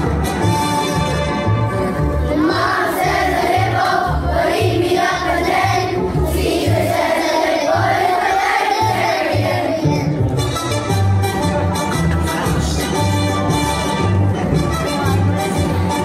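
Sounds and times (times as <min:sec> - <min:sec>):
children's choir singing: 0:02.2 - 0:10.2.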